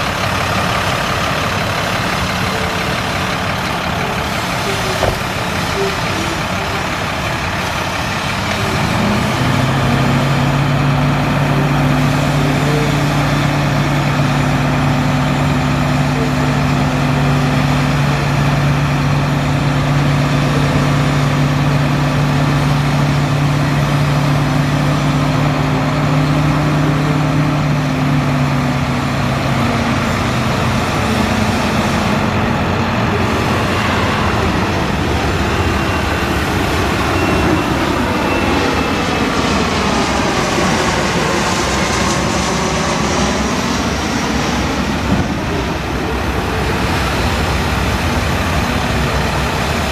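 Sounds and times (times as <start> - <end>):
hydraulic hoist humming: 0.0 - 18.9
diesel truck engine running: 0.0 - 49.9.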